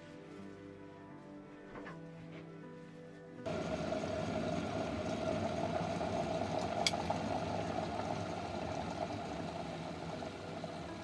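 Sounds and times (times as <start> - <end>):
kettle boiling: 3.5 - 11.0
kettle switch click: 6.6 - 7.1.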